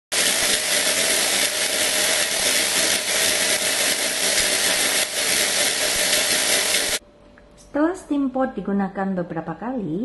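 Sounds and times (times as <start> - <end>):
steam hissing from nozzle: 0.2 - 7.0.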